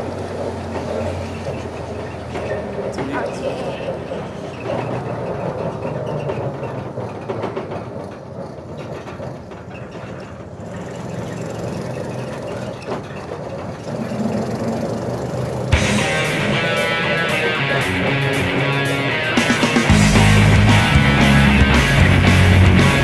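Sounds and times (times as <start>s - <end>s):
vehicle road and wind rumble: 0.0s - 15.8s.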